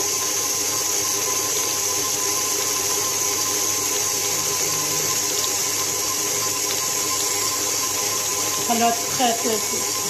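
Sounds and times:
stand mixer running: 0.0s - 10.0s
beater in metal bowl: 2.4s - 10.0s.

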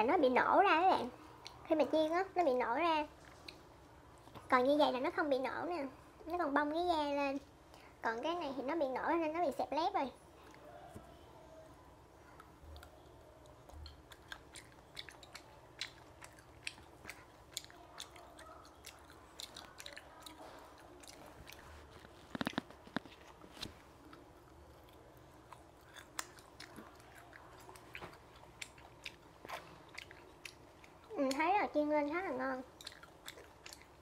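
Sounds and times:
crunchy chewing: 12.2s - 34.0s.

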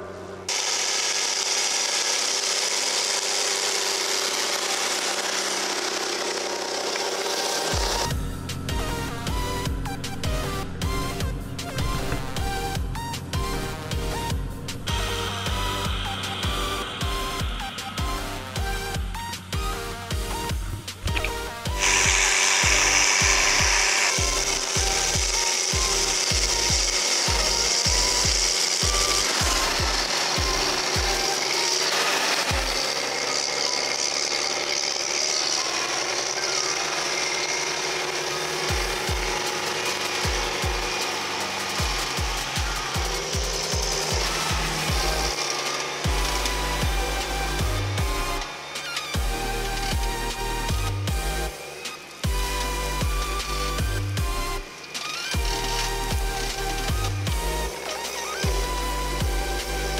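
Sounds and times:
tractor engine under load: 0.0s - 59.9s
plough hissing through soil: 0.5s - 9.3s, 14.7s - 19.6s, 20.4s - 59.9s
electronic music with kick drum: 7.7s - 31.4s, 38.7s - 39.4s, 40.2s - 41.0s, 41.8s - 45.3s, 46.1s - 48.5s, 49.2s - 51.5s, 52.2s - 54.7s, 55.4s - 59.9s.

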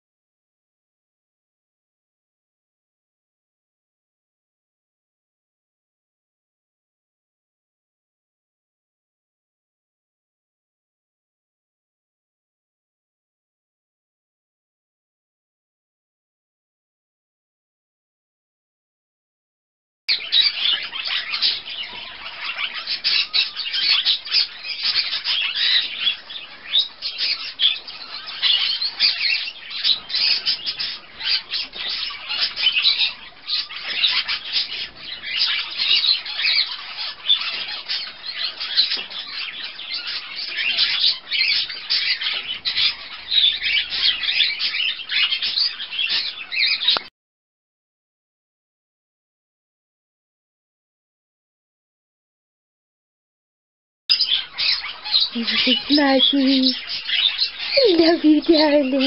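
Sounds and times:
budgerigar chattering and warbling: 20.1s - 47.0s, 54.1s - 59.0s.

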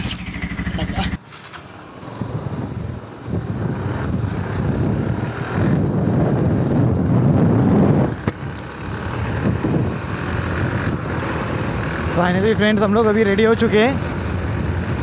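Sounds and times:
motorcycle engine running: 0.0s - 15.0s
wind buffeting microphone: 1.8s - 12.2s.

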